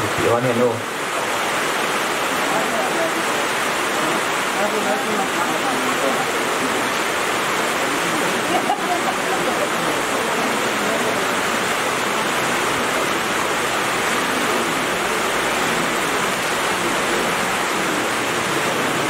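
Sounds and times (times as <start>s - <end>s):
loud static hiss: 0.0s - 19.0s.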